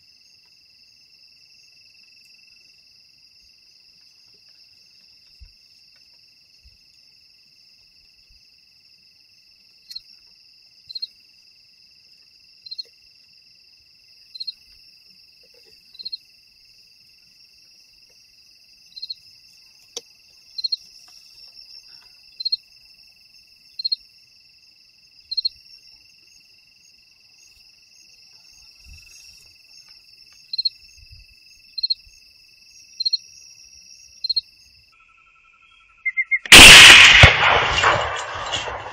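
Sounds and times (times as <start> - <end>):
cricket chirping: 0.0 - 38.9
night insects trilling: 0.0 - 38.9.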